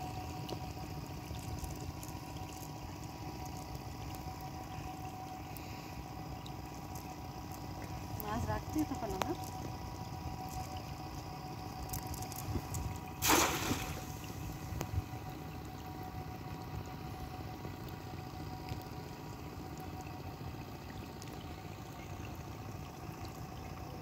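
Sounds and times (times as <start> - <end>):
faint steady hum: 0.0 - 24.0
net splashing into water: 13.2 - 14.6.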